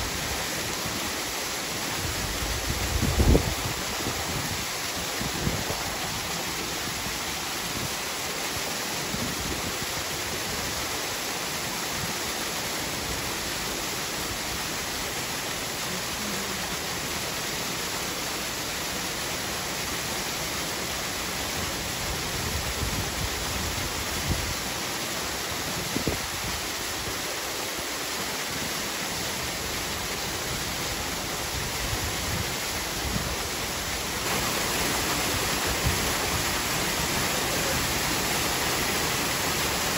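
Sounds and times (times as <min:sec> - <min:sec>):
water pouring into pool: 0:32.8 - 0:39.9.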